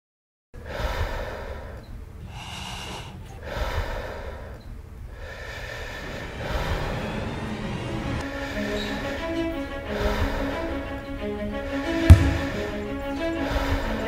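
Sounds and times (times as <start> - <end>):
person breathing hard: 0.6 - 7.3, 8.2 - 9.1, 9.9 - 10.7, 12.1 - 14.0.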